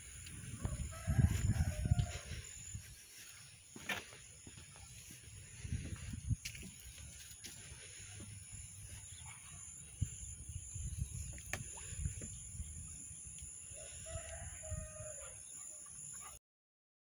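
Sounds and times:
wind rumbling on microphone: 0:00.0 - 0:03.2, 0:04.4 - 0:15.2.

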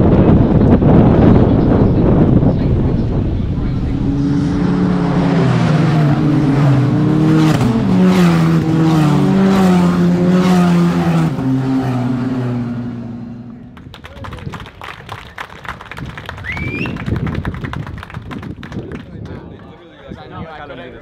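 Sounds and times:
race cars passing at high revs: 0:00.1 - 0:13.8.

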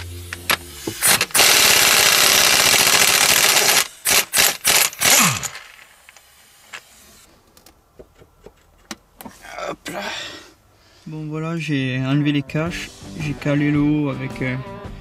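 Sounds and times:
power tool hammering: 0:00.0 - 0:05.8.

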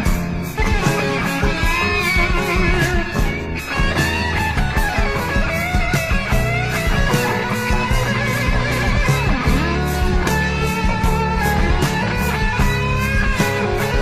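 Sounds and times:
bass: 0:00.0 - 0:14.0
drums with cymbal strokes: 0:00.0 - 0:14.0
electric guitar bending lines: 0:00.0 - 0:14.0.

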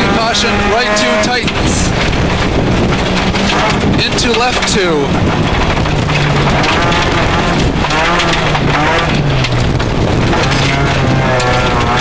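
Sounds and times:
rally car engine revving: 0:00.0 - 0:12.0
tyre and road noise: 0:00.0 - 0:12.0.

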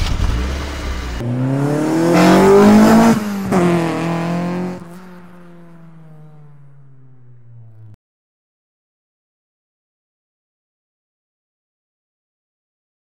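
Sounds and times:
car engine revving: 0:00.0 - 0:08.0.

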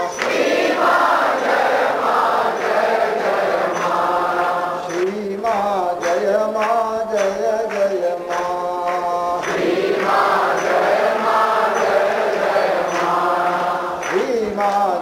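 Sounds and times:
lead voice singing: 0:00.0 - 0:15.0
group of voices chanting: 0:00.1 - 0:05.1, 0:09.4 - 0:14.2.

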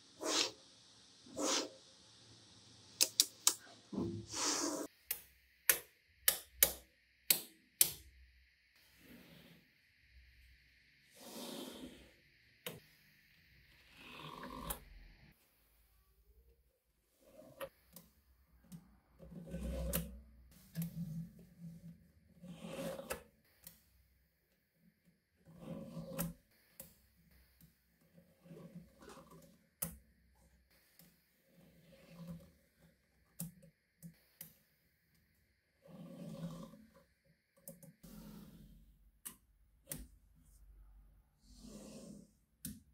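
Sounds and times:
magnetic balls clicking together: 0:03.0 - 0:03.6.

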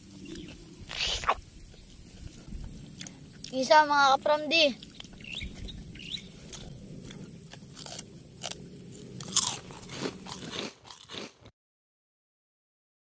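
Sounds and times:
crunching crispy fried food: 0:06.4 - 0:08.6, 0:09.2 - 0:11.5.

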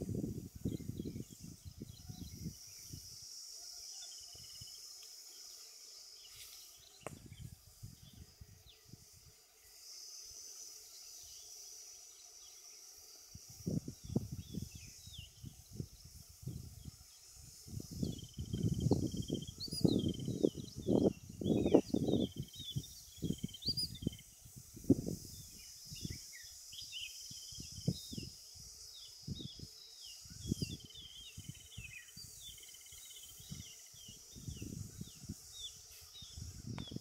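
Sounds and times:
high-pitched insect hum: 0:00.0 - 0:37.0
faint bird chirps: 0:18.0 - 0:24.4.

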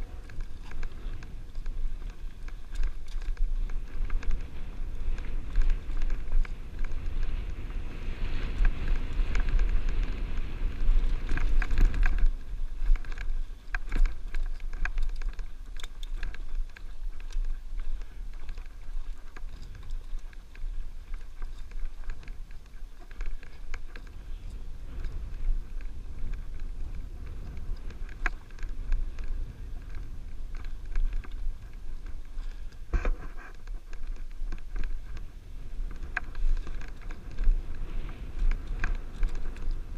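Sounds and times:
bike knocks and rattles: 0:00.0 - 0:39.9
bike tyre noise: 0:00.0 - 0:39.9
wind buffeting microphone: 0:00.0 - 0:39.9.

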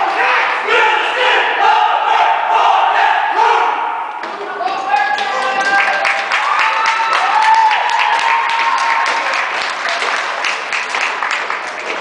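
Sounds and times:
crowd applauding: 0:04.6 - 0:12.0
voices cheering and whooping: 0:05.0 - 0:10.1.

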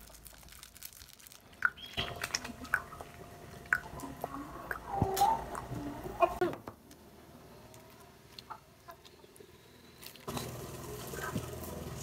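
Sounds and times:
plastic sachets tearing and crinkling: 0:00.0 - 0:02.6.

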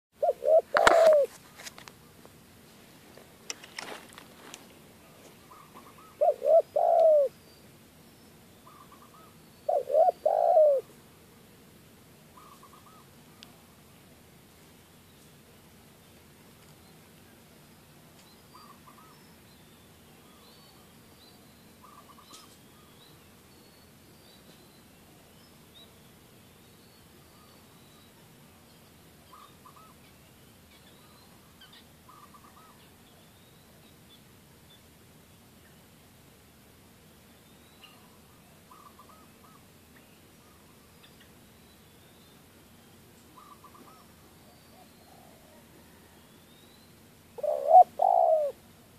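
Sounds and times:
bird calls: 0:00.2 - 0:01.4, 0:05.4 - 0:07.6, 0:08.6 - 0:10.9, 0:12.4 - 0:13.4, 0:18.2 - 0:24.9, 0:29.2 - 0:33.7, 0:37.6 - 0:48.6
dove cooing: 0:00.2 - 0:01.4, 0:05.0 - 0:07.4, 0:08.6 - 0:10.9, 0:12.4 - 0:13.7, 0:18.5 - 0:19.2, 0:29.3 - 0:30.0, 0:32.1 - 0:32.9, 0:37.9 - 0:39.7, 0:43.4 - 0:46.2, 0:47.4 - 0:48.6
steady background hiss: 0:00.2 - 0:48.9.

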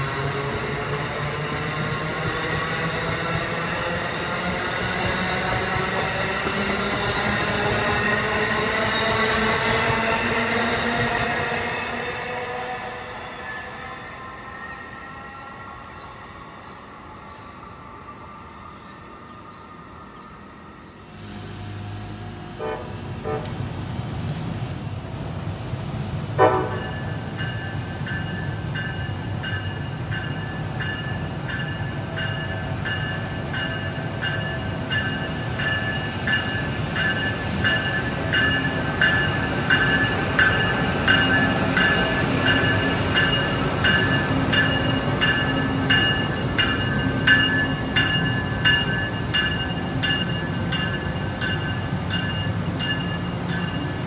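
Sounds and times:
train rumble: 0:00.0 - 0:14.4, 0:21.0 - 0:54.0
locomotive high whine: 0:03.4 - 0:25.7
train horn toots: 0:21.4 - 0:23.6, 0:26.4 - 0:27.0.

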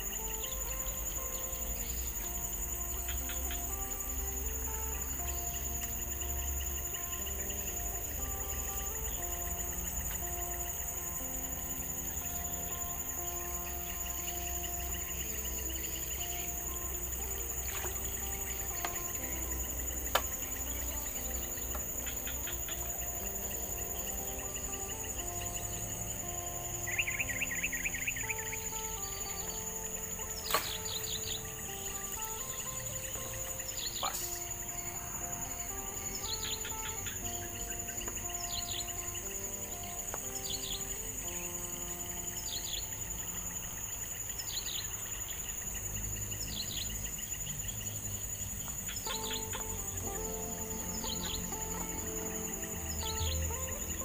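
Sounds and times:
bird calling: 0:00.0 - 0:45.0, 0:48.6 - 0:54.0
crickets trilling: 0:00.0 - 0:54.0
insects shrilling: 0:00.0 - 0:54.0
sharp click: 0:30.4 - 0:30.9.

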